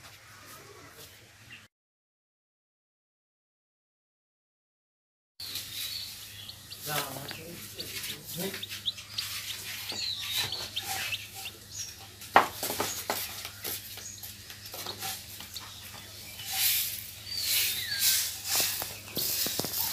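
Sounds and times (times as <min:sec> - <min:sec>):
chick peeping: 0:05.4 - 0:19.9.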